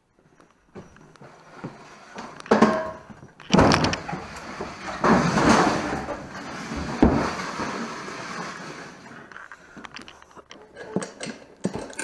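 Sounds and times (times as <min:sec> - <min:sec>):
dolly rattling across concrete: 0:01.8 - 0:09.4.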